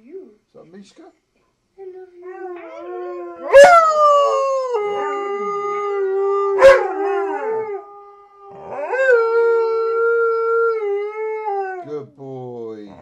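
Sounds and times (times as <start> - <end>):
dogs howling: 2.1 - 12.1.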